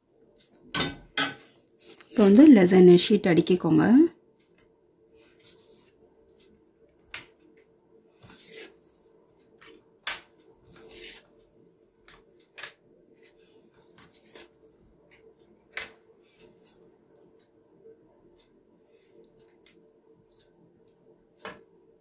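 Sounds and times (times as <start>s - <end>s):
pasta rustling: 1.8s - 2.5s, 8.2s - 9.8s, 10.6s - 15.2s.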